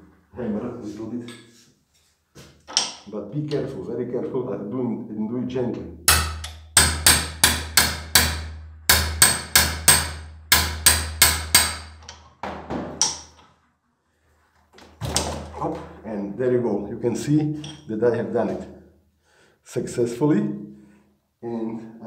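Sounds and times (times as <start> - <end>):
hammer tapping on metal wrench: 6.1 - 12.2.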